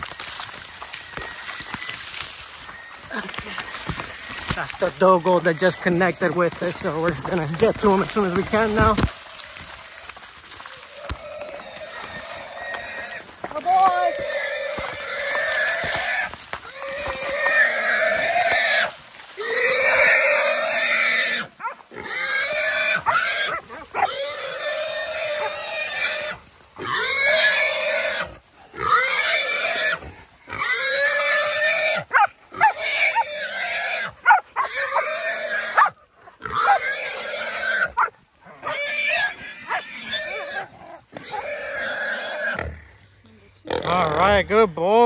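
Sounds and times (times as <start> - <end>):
hog squealing: 10.7 - 42.7.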